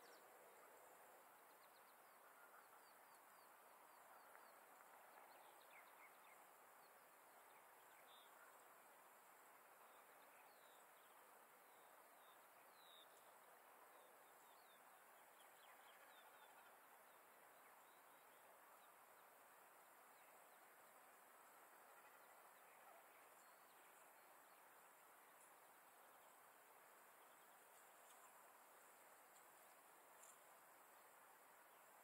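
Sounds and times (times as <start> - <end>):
faint outdoor hiss: 0.0 - 32.0
small birds chirping: 22.0 - 32.0.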